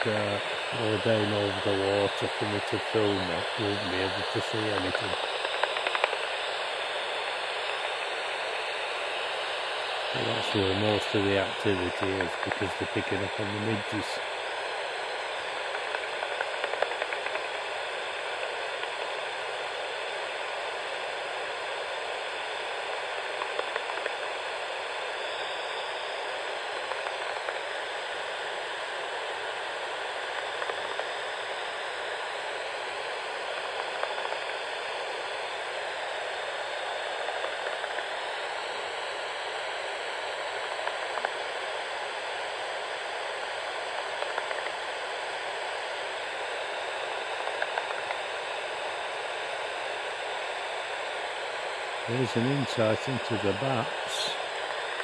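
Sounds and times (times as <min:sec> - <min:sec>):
bat detector hissing: 0:00.0 - 0:55.0
bat echolocation clicks: 0:05.4 - 0:06.2.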